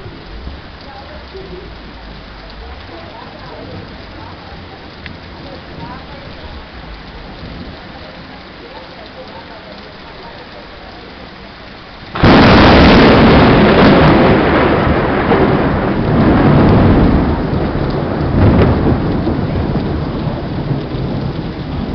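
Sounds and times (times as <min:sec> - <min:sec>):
heavy rain: 0:00.0 - 0:21.9
loud thunderclap rumbling: 0:12.1 - 0:21.9.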